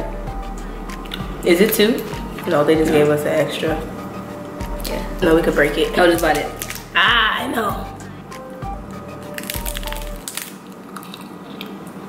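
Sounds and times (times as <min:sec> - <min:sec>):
wafer crunching when bitten: 0:09.3 - 0:11.8.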